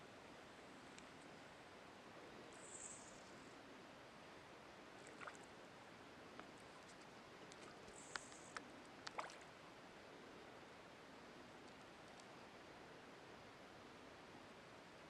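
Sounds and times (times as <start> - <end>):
faint outdoor hiss: 0.0 - 15.0
light water sounds: 4.9 - 9.6
small ticks: 6.4 - 9.4, 11.6 - 12.4.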